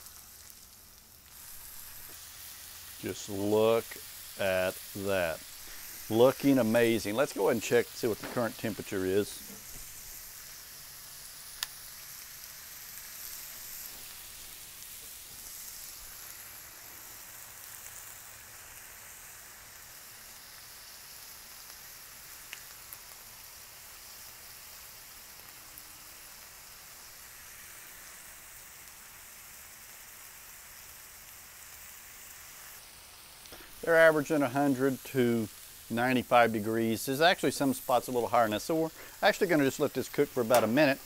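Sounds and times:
steaks sizzling on griddle: 0:00.0 - 0:41.0
sharp clicks: 0:40.4 - 0:40.8.

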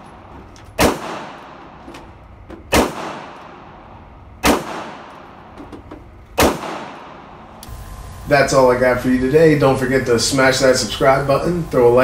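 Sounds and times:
revolver shots echoing indoors: 0:00.0 - 0:08.2.

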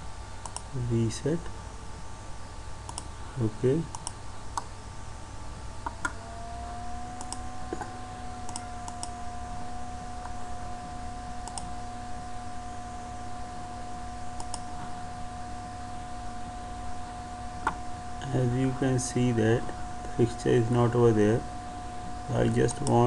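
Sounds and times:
low steady hum: 0:00.0 - 0:23.0
computer mouse and key clicks: 0:00.4 - 0:00.7, 0:02.9 - 0:03.1, 0:03.9 - 0:04.7, 0:07.2 - 0:09.1, 0:11.4 - 0:11.7, 0:14.4 - 0:14.7, 0:22.8 - 0:23.0
steady mid-pitched tone: 0:05.0 - 0:23.0.

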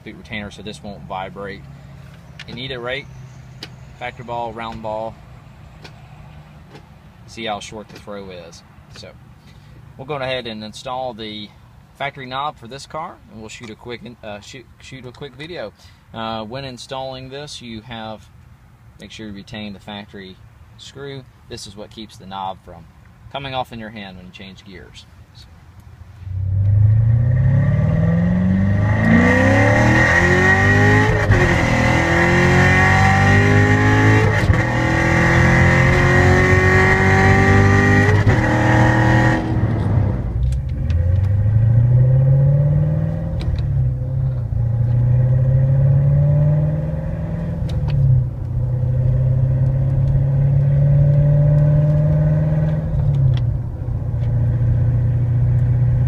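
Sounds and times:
car engine accelerating: 0:26.2 - 0:56.0.

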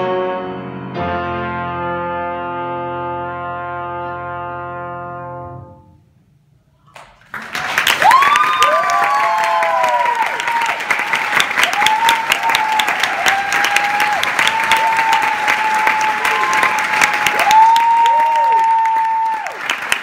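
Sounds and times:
audience applauding: 0:06.9 - 0:20.0.

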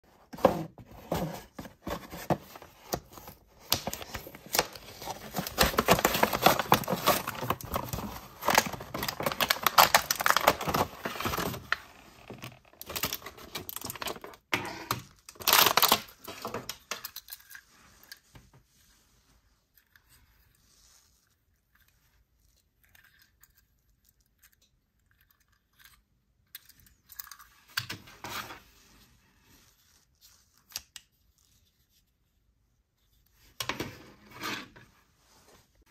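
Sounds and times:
blister packaging tearing and crinkling: 0:03.7 - 0:11.7, 0:12.4 - 0:14.4, 0:15.3 - 0:17.5
loud packaging rip: 0:15.4 - 0:16.1.

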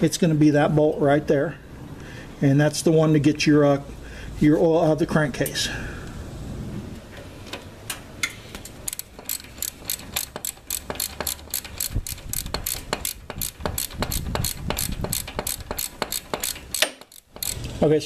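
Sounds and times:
socket ratchet clicking: 0:08.7 - 0:17.7.

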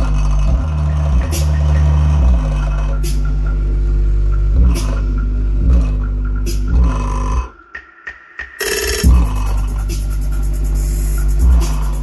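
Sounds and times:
deep bass notes: 0:00.0 - 0:07.6, 0:09.0 - 0:12.0
sharp percussive hits: 0:04.3 - 0:12.0.

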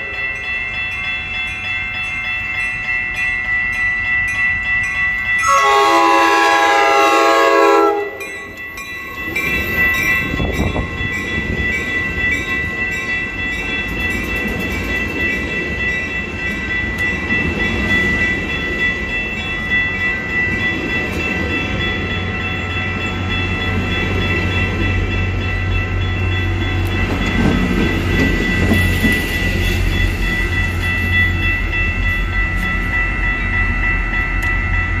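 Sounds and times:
train coaches rolling by: 0:00.0 - 0:35.0
high-pitched ringing: 0:07.9 - 0:35.0.

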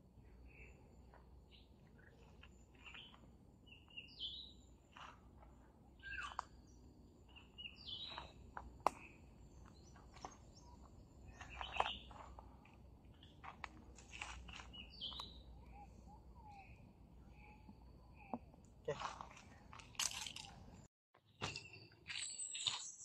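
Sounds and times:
birds chirping and calling: 0:00.4 - 0:05.2, 0:06.0 - 0:12.5, 0:13.1 - 0:18.5.

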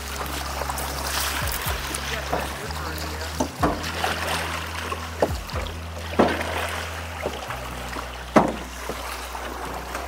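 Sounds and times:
boat engine drone: 0:00.0 - 0:10.0
music: 0:00.0 - 0:10.0
hull knocks: 0:03.4 - 0:03.9, 0:08.4 - 0:09.0.

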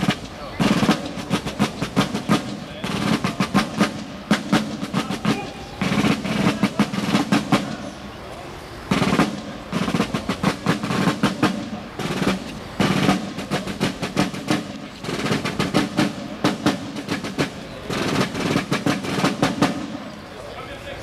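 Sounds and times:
snare drums marching cadence: 0:00.0 - 0:20.5.

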